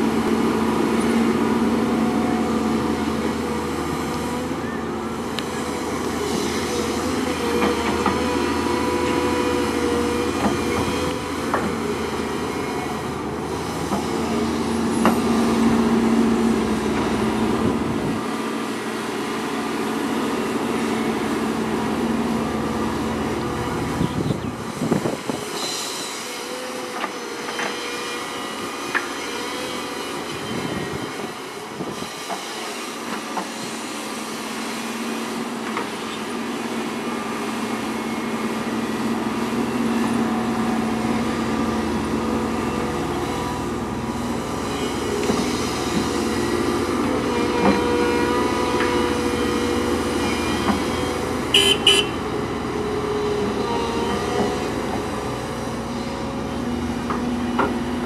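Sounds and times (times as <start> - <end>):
diesel engines running: 0.0 - 58.0
excavator hydraulics: 0.0 - 58.0.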